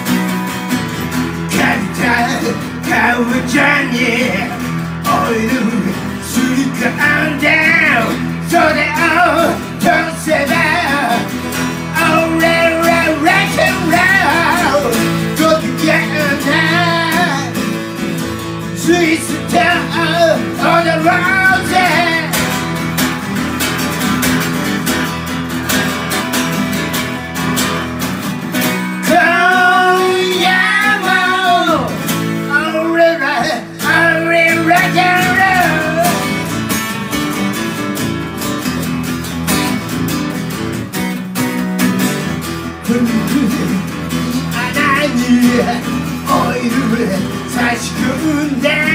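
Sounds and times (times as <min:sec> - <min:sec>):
acoustic guitars strumming: 0:00.0 - 0:48.9
person singing into microphone: 0:01.5 - 0:11.3, 0:11.9 - 0:17.6, 0:18.8 - 0:22.4, 0:29.0 - 0:36.4, 0:42.9 - 0:48.9.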